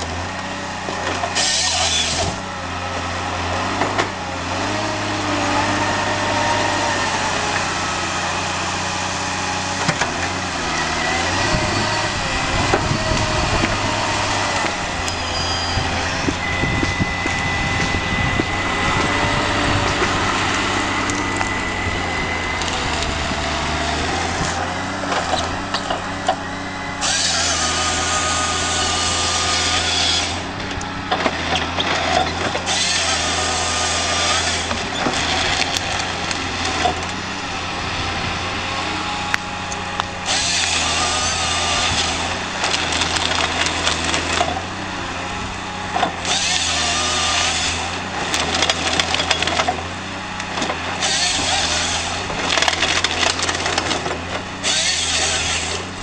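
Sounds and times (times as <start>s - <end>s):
chainsaw bar cutting whine: 0.0s - 56.0s
diesel engine running: 0.0s - 56.0s.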